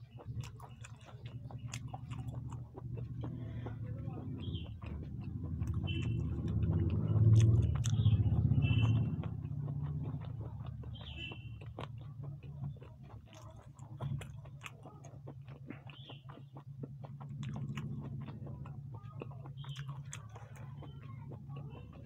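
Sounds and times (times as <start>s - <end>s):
mouth clicks and smacks: 0.0s - 22.0s
person chewing food: 0.0s - 22.0s.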